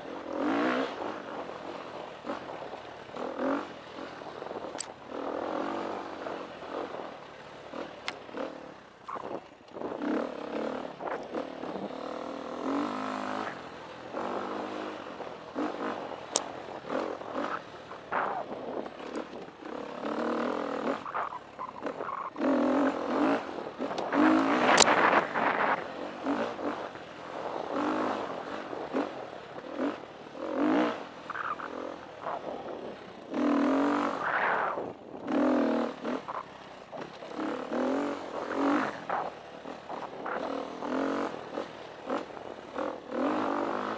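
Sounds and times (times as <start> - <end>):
dirt bike engine revving: 0.0 - 43.9
sharp clicks: 24.7 - 25.0.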